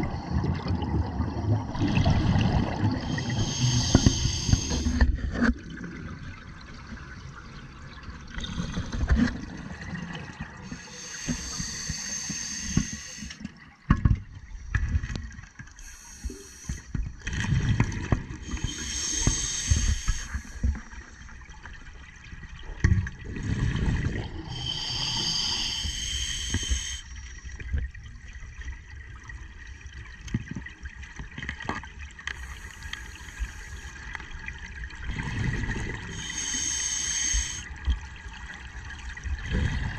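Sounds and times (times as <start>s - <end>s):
regulator hissing inhalation: 3.1s - 5.0s, 10.7s - 13.4s, 15.8s - 16.9s, 18.5s - 20.7s, 24.5s - 27.3s, 36.1s - 37.7s.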